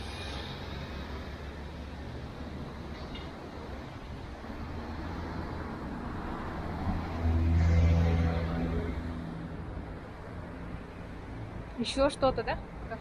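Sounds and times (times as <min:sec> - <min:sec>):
traffic rumble: 0:00.0 - 0:13.0
vehicle passing close by: 0:04.5 - 0:09.7.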